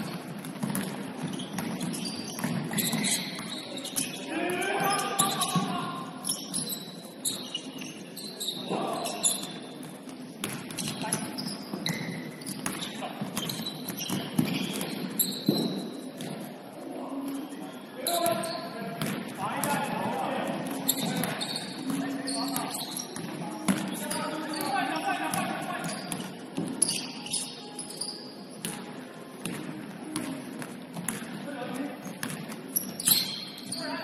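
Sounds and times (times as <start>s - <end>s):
basketball bouncing on hardwood court: 0.0s - 3.6s, 11.9s - 16.4s, 19.0s - 19.2s, 32.2s - 32.6s.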